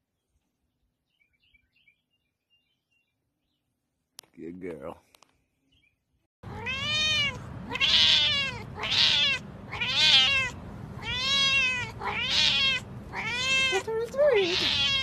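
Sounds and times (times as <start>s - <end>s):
cat meowing: 6.5s - 15.0s.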